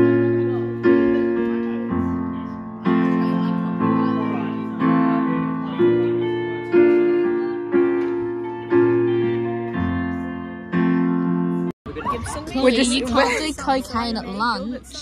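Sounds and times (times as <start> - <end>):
electric keyboard slow chords: 0.0 - 11.8.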